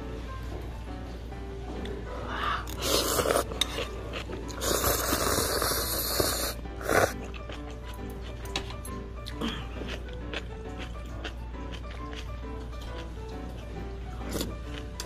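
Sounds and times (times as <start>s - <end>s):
background music: 0.0s - 15.0s
person slurping noodles: 2.4s - 7.3s
chewing: 2.7s - 15.0s.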